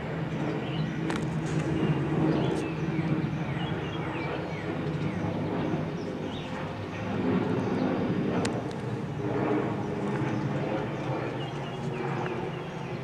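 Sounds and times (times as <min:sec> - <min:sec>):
jet engines rumbling: 0:00.0 - 0:13.0
small birds chirping: 0:09.8 - 0:13.0.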